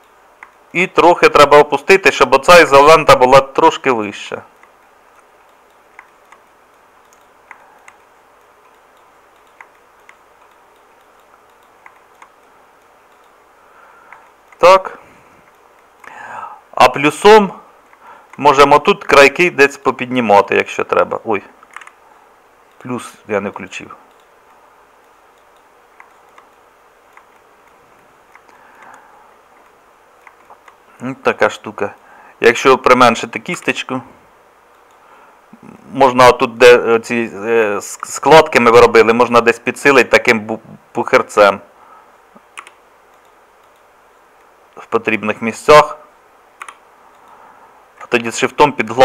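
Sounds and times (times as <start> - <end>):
computer mouse clicks: 0.0 - 0.8, 4.5 - 13.4, 14.0 - 14.8, 21.6 - 22.9, 23.5 - 30.8, 34.7 - 35.0, 42.4 - 44.5, 46.6 - 47.4, 48.0 - 48.3
faint hiss: 0.0 - 49.0
computer mouse button clicking: 5.5 - 13.4, 42.4 - 43.9.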